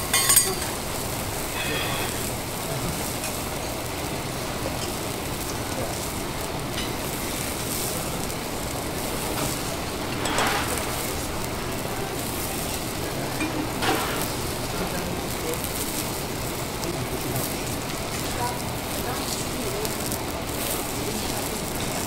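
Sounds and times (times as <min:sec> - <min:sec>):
food sizzling on a griddle: 0:00.0 - 0:22.0
short loud hisses: 0:01.5 - 0:02.4.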